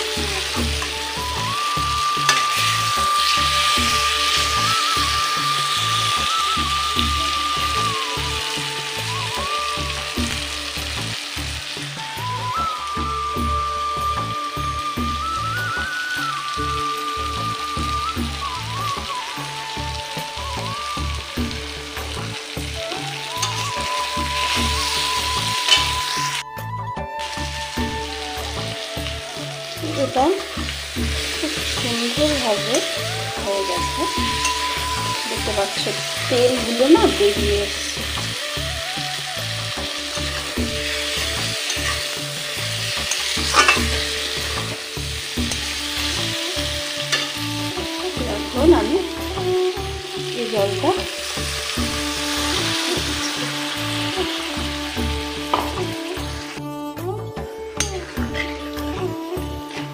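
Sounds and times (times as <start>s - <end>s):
background music with beat: 0.0s - 59.9s
food sizzling in oil: 0.0s - 59.9s
spatula scraping metal pan: 2.2s - 5.0s, 24.4s - 26.0s, 40.4s - 42.2s, 42.8s - 44.5s, 57.8s - 58.8s
metal spatula scraping a pan: 2.2s - 6.2s, 23.4s - 26.4s, 34.0s - 38.2s, 40.0s - 47.4s, 57.8s - 58.9s.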